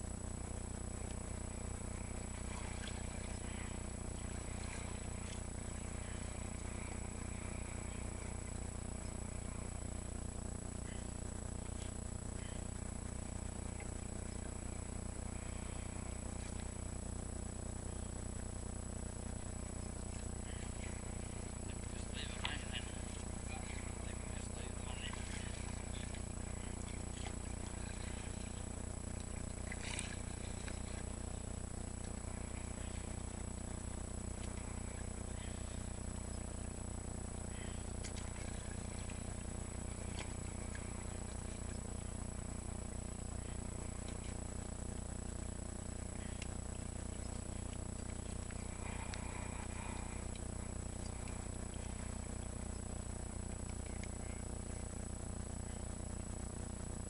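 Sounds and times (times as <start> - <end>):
steady low hum: 0.0 - 57.0
thin high whine: 0.0 - 57.0
paddle splashing in water: 21.8 - 31.2.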